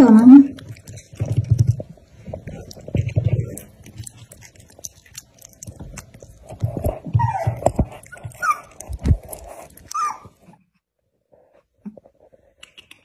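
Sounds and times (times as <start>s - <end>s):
puppy chewing and licking: 0.1s - 10.6s
puppy whining: 6.9s - 10.6s.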